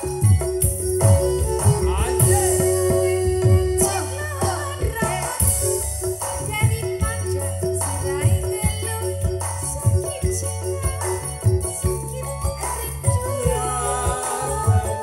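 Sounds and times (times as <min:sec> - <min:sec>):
gamelan band playing: 0:00.0 - 0:15.0
people singing: 0:01.9 - 0:05.9, 0:12.7 - 0:15.0.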